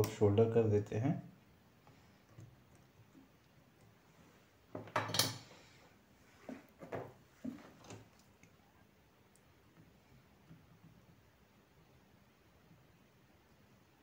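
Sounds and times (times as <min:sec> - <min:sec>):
light knocks and taps: 0:06.5 - 0:08.1.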